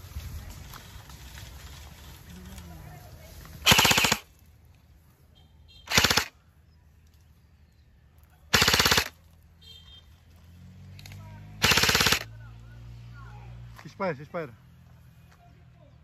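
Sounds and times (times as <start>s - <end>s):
airsoft gun full-auto bursts: 3.6s - 4.3s, 5.9s - 6.3s, 8.5s - 9.2s, 11.6s - 12.3s.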